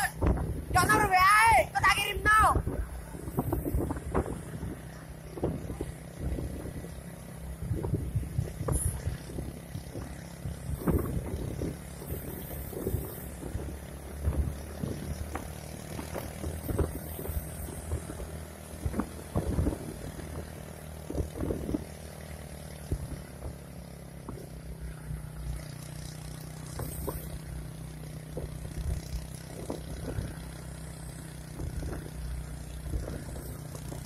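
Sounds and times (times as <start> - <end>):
vehicle engine humming: 0.0 - 34.0.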